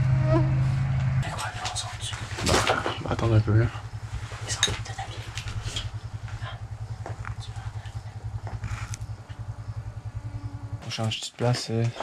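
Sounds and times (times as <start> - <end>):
atv engine running: 0.0 - 12.0
faint clicks: 7.0 - 9.4.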